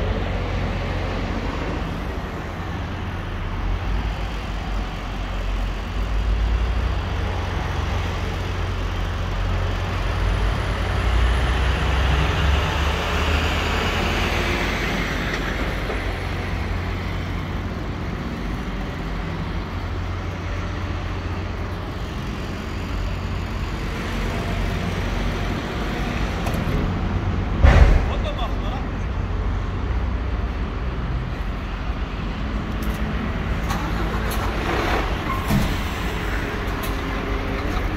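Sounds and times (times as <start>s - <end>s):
truck diesel engine rumbling: 0.0s - 37.9s
sharp knock: 27.6s - 28.5s.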